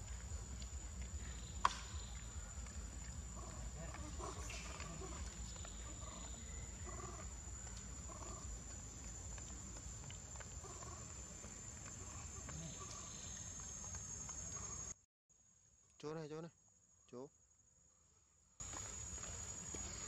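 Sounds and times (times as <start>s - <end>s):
high-pitched insect drone: 0.0s - 15.0s.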